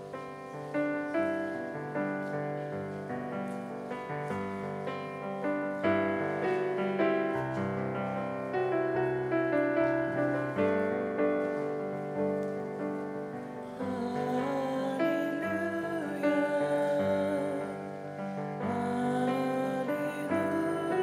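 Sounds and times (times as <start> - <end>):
piano chords: 0.0 - 21.0
person singing: 13.6 - 21.0.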